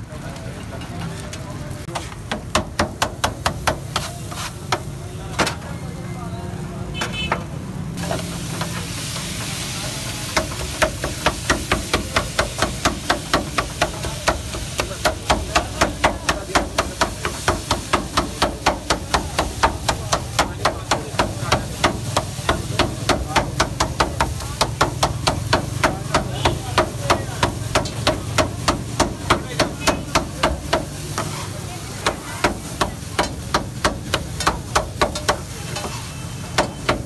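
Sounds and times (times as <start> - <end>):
food sizzling on griddle: 0.0 - 37.0
metal scraper clacking on griddle: 10.3 - 37.0.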